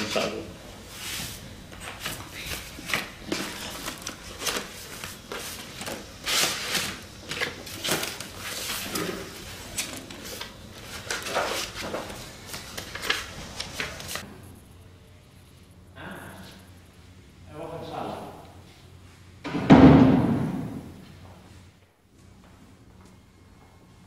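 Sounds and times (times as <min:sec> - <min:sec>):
paper sheets rustling: 0:00.0 - 0:14.2.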